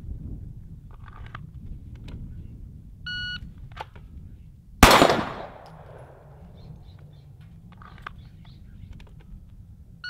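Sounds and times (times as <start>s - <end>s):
pistol shot with echo: 4.8s - 6.6s.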